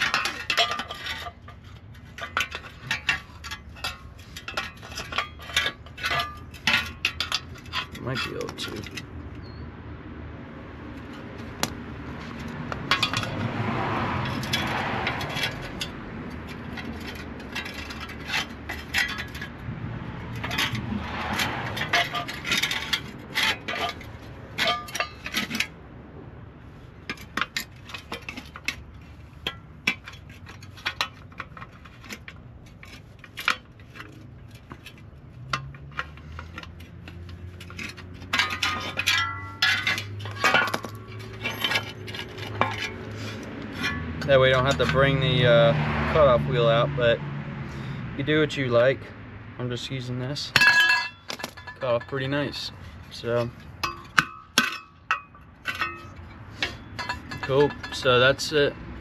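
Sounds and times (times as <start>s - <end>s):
metal rasping: 0.0s - 9.6s, 11.0s - 25.8s, 26.8s - 46.4s, 50.5s - 59.0s
hand tool cutting metal: 35.4s - 45.5s.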